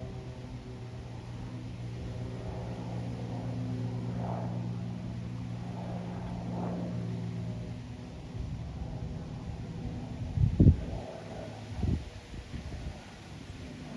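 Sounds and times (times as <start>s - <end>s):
aircraft engine drone overhead: 0.0s - 13.9s.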